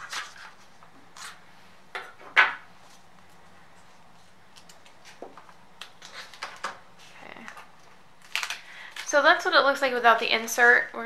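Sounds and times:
card rustling and scraping: 0:00.0 - 0:01.4, 0:03.8 - 0:07.6.

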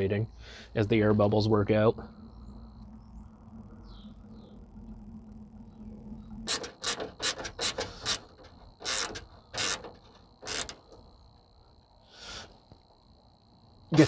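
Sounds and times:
mechanical clicks: 0:05.2 - 0:11.1.

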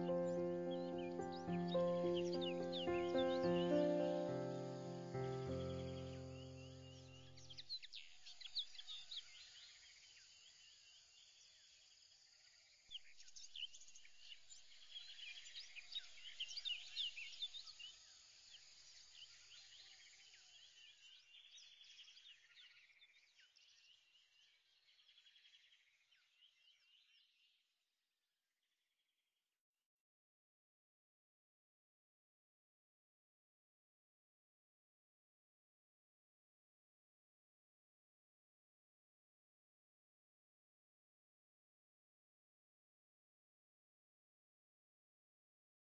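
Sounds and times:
birds chirping: 0:00.0 - 0:09.4.

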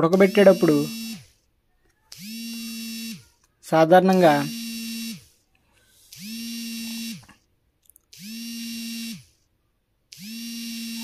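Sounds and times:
small motor buzzing: 0:00.0 - 0:01.4, 0:02.1 - 0:03.4, 0:04.1 - 0:07.4, 0:08.1 - 0:09.5, 0:10.1 - 0:11.0.

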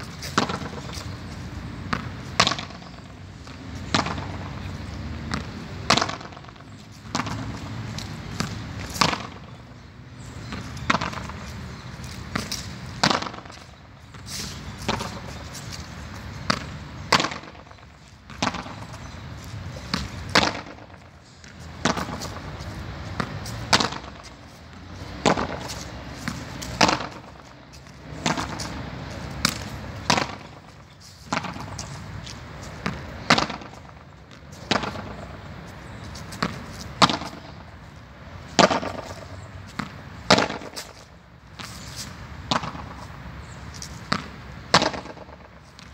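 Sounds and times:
racket hitting ball: 0:00.0 - 0:01.2, 0:01.9 - 0:37.8, 0:38.4 - 0:43.1, 0:43.8 - 0:45.9
ball knocking off concrete: 0:05.3 - 0:07.5, 0:08.4 - 0:09.6, 0:10.8 - 0:11.4, 0:12.3 - 0:13.6, 0:16.5 - 0:18.9, 0:19.9 - 0:21.0, 0:21.8 - 0:22.4, 0:23.2 - 0:24.3, 0:25.2 - 0:25.7, 0:26.6 - 0:28.8, 0:29.4 - 0:30.6, 0:31.3 - 0:31.8, 0:32.8 - 0:34.0, 0:34.7 - 0:35.3, 0:36.4 - 0:37.6, 0:38.6 - 0:41.0, 0:44.1 - 0:45.4.

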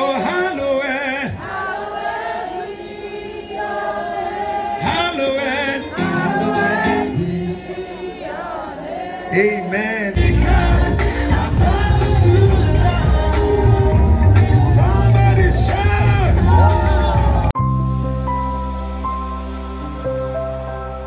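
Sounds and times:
choir singing: 0:01.2 - 0:17.5
heavy bass beat: 0:10.2 - 0:17.6.

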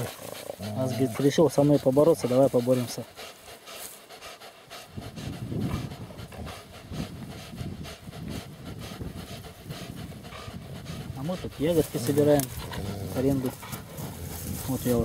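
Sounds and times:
dog growling: 0:00.0 - 0:03.3, 0:04.9 - 0:15.0.

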